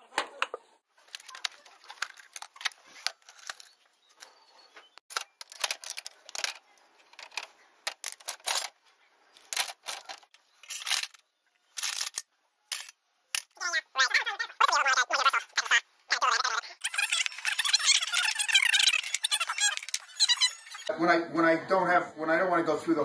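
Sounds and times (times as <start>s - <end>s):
metal tools clinking and clattering: 9.5s - 11.2s.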